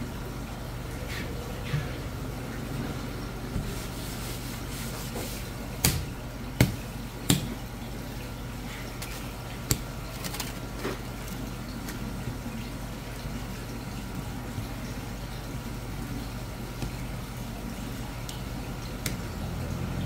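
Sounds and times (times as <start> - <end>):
low hum of shop equipment: 0.0 - 20.0
sharp knocks from fish cutting: 5.8 - 7.6.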